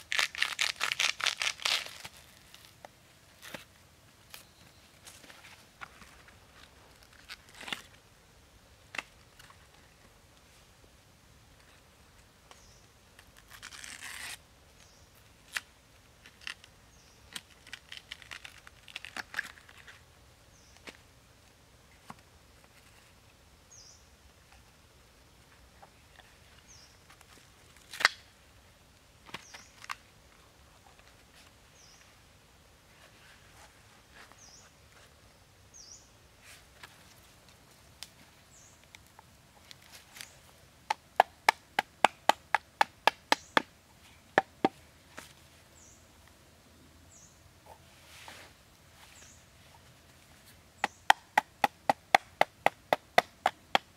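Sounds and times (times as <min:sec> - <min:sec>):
stalk layers peeled and snapped: 0:00.0 - 0:02.8, 0:13.2 - 0:14.4, 0:17.3 - 0:20.0, 0:27.8 - 0:28.3.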